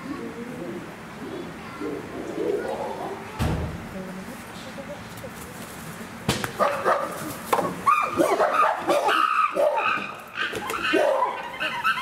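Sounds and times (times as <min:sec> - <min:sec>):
chimpanzees calling excitedly: 0:07.7 - 0:12.0.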